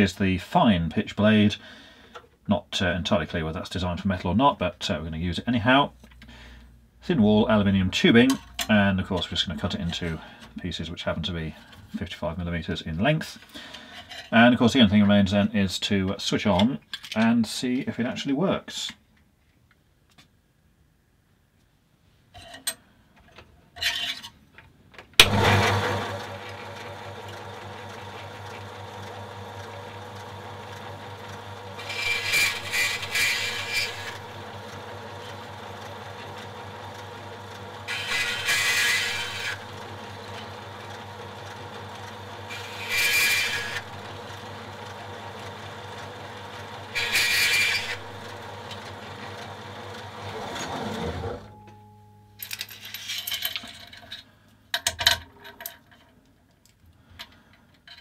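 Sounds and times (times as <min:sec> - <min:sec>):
saw blade cutting metal tubing: 0:25.2 - 0:35.4, 0:37.8 - 0:40.6, 0:42.4 - 0:44.3, 0:46.6 - 0:51.4
bandsaw running hum: 0:25.2 - 0:51.5.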